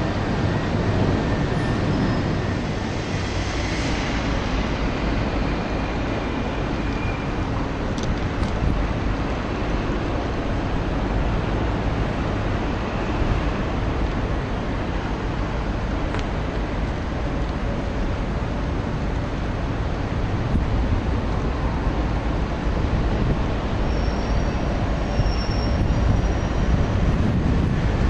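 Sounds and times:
train rumbling: 0.0 - 28.0.

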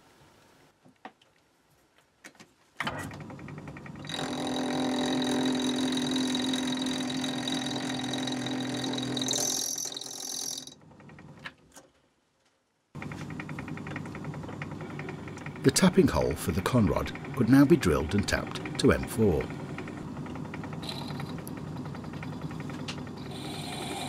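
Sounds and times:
lathe running with whine: 4.0 - 10.8, 13.0 - 24.0.

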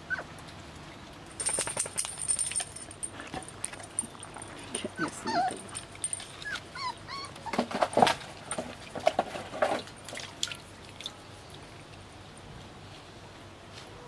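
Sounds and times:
puppies whimpering and yelping: 0.0 - 0.3, 4.8 - 7.8
puppies scuffling: 1.3 - 10.7.

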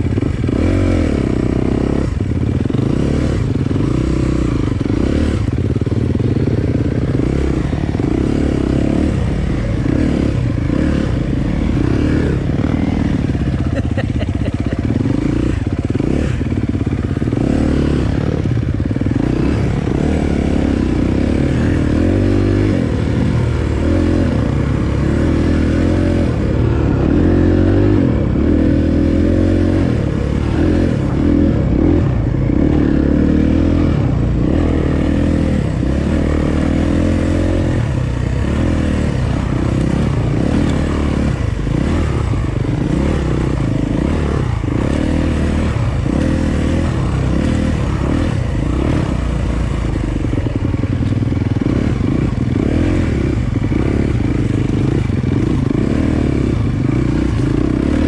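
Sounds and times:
dirt bike engine: 0.0 - 58.0.

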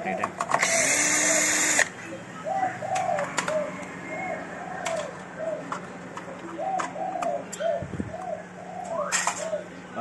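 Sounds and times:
dove cooing: 2.4 - 10.0.

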